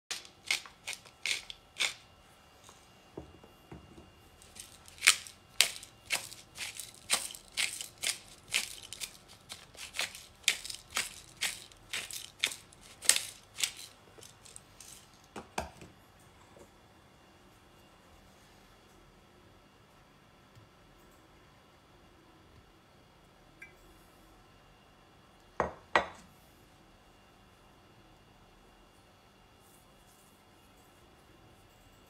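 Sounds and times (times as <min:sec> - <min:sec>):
pepper mill grinding: 0:00.1 - 0:02.1, 0:04.4 - 0:15.7.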